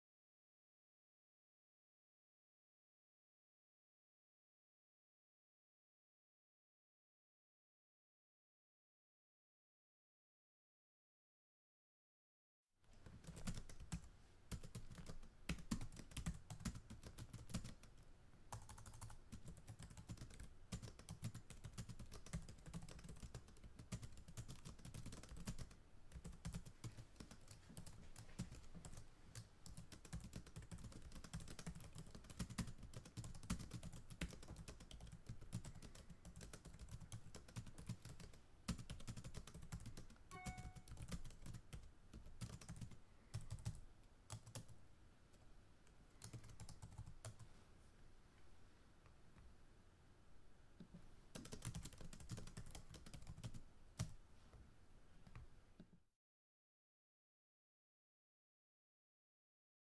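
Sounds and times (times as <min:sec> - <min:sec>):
computer keyboard typing: 0:13.2 - 0:44.7, 0:46.2 - 0:47.4, 0:51.3 - 0:54.2.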